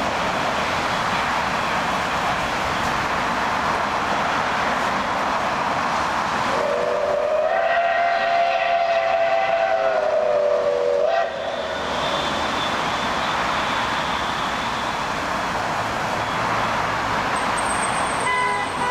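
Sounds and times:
road traffic: 0.0s - 18.9s
train running: 0.0s - 18.9s
steam whistle blast: 6.6s - 12.8s.

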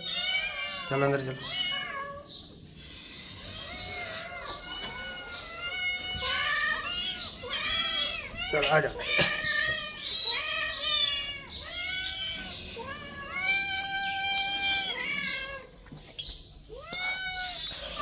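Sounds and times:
cats meowing: 0.0s - 18.0s.

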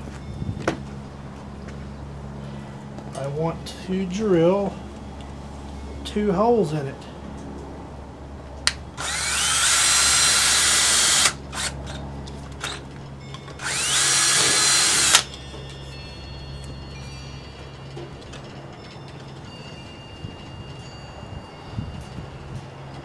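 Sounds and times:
power drill boring through plastic pipe: 9.0s - 12.0s, 13.6s - 15.3s.

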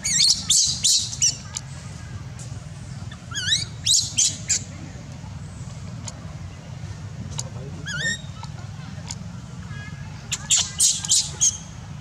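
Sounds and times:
baby monkey squealing: 0.0s - 1.4s, 3.1s - 4.7s, 7.8s - 8.5s, 10.3s - 11.7s.

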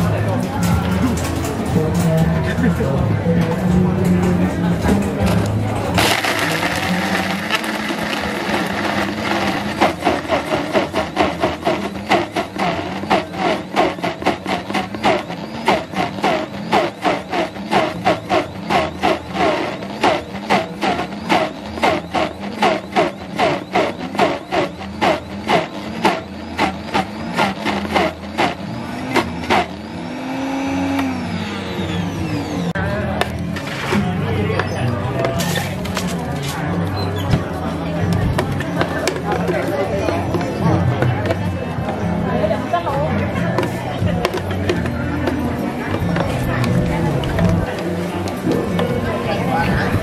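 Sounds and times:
ice chunks knocking in jar: 6.0s - 12.5s
blender churning: 6.0s - 32.6s.

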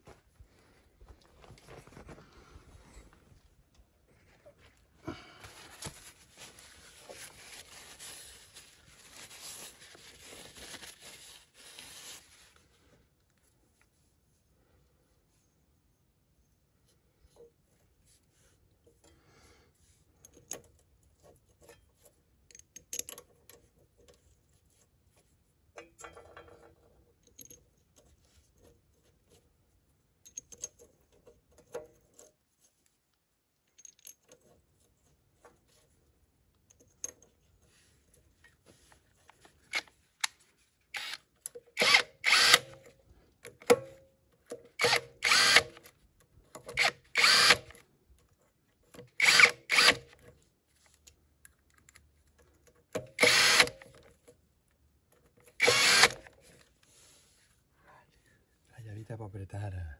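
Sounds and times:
power tool bursts turning nut: 40.9s - 41.2s, 41.8s - 42.8s, 44.8s - 45.8s, 46.7s - 47.8s, 49.2s - 50.1s, 53.1s - 53.9s, 55.6s - 56.3s.

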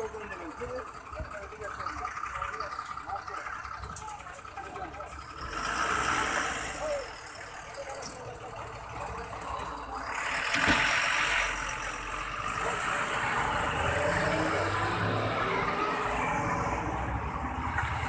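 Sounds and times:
vehicle engines passing: 0.0s - 18.0s.

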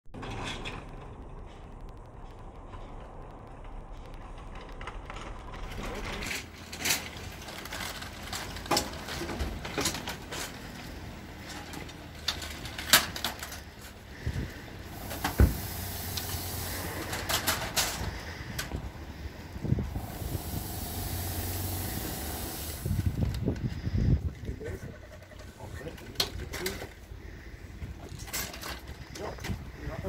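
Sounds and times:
metal shopping carts clanking: 4.4s - 14.1s, 14.9s - 18.6s
disinfectant spray hiss: 14.9s - 17.1s, 19.9s - 23.0s.

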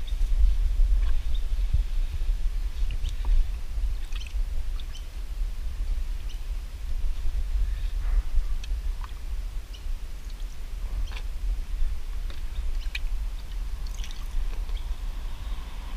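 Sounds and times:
wind rumble on microphone: 0.0s - 15.9s
bird chirps: 4.0s - 5.1s.

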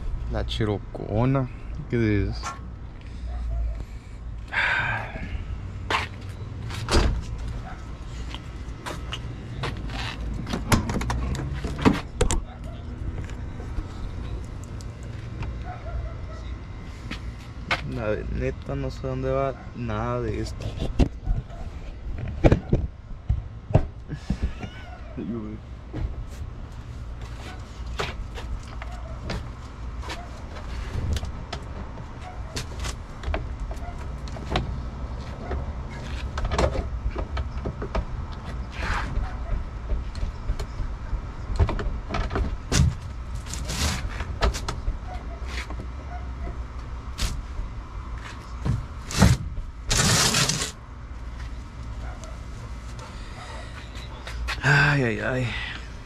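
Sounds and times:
car parts and tools clicking: 6.0s - 13.4s
rasping bursts: 49.1s - 50.8s.

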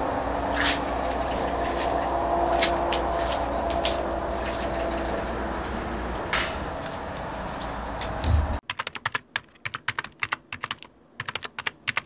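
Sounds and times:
low rumble: 0.0s - 8.6s
low thump: 8.2s - 8.6s
computer keyboard typing: 8.6s - 12.0s.

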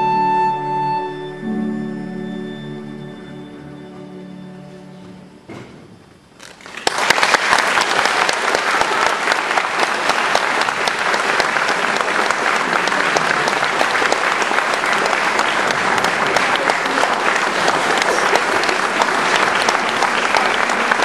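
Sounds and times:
audience applause: 6.4s - 21.0s.

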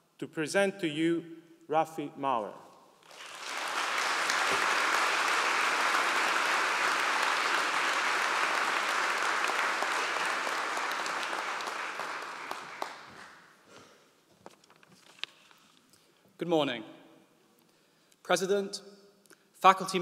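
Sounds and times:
audience applauding: 3.0s - 13.5s.

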